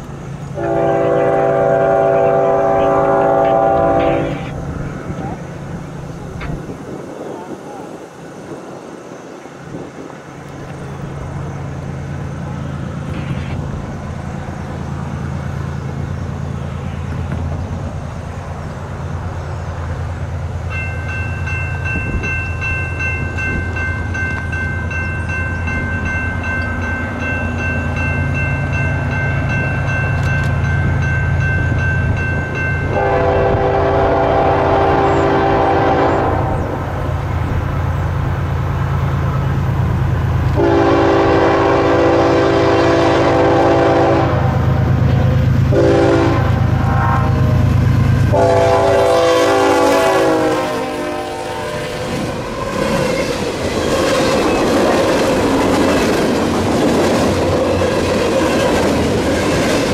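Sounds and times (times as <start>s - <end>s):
diesel locomotives rumbling: 0.0s - 59.9s
train horn blasts: 0.6s - 4.6s, 32.9s - 36.8s, 40.5s - 44.7s, 45.7s - 52.3s
crossing bell ringing: 20.6s - 35.2s.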